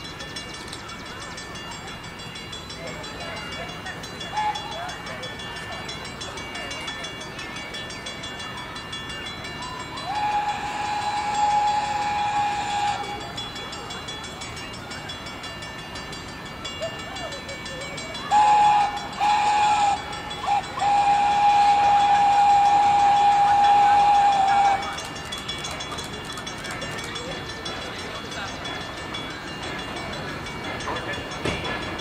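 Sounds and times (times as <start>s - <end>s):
train whistle blasts: 9.7s - 13.4s, 18.2s - 25.0s.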